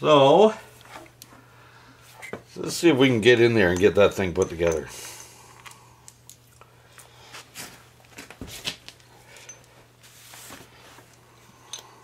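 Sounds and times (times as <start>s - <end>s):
steady low hum: 0.0s - 12.0s
metal tools clicking and knocking: 3.6s - 5.3s.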